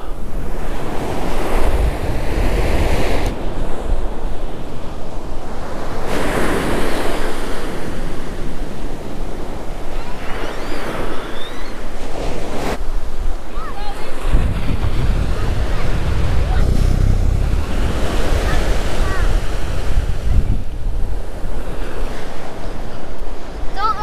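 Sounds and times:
wind buffeting microphone: 0:00.2 - 0:06.2, 0:12.9 - 0:23.6
ocean surf breaking: 0:13.0 - 0:23.6.

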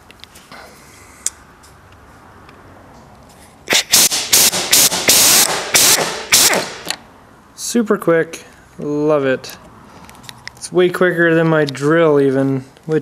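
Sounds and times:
pneumatic impact wrench hammering: 0:03.7 - 0:07.0.

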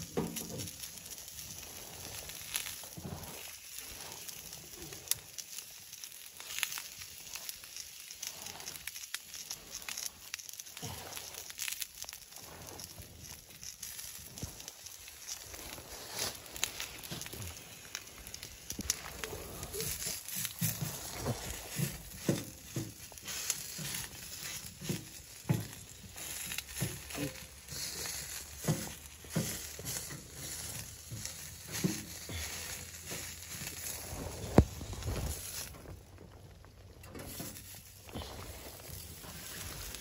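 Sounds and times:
rain jacket rustling: 0:12.2 - 0:24.8, 0:29.2 - 0:40.0.

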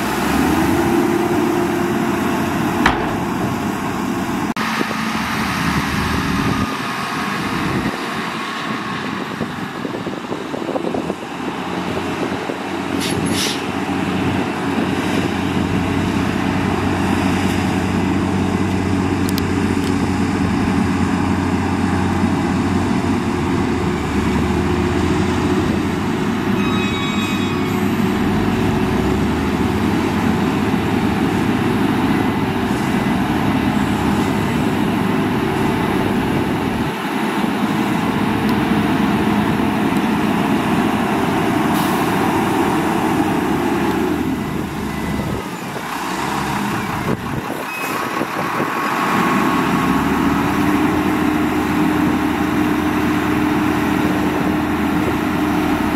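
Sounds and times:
dump truck diesel engine running: 0:00.0 - 0:55.9
brief high hiss: 0:13.0 - 0:13.6.

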